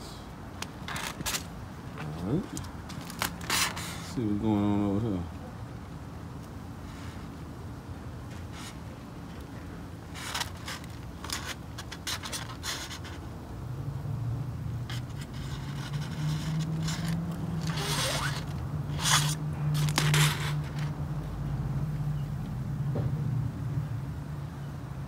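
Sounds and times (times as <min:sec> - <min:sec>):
aluminium foil crinkling: 0:02.5 - 0:04.2, 0:10.2 - 0:13.2, 0:15.0 - 0:21.0.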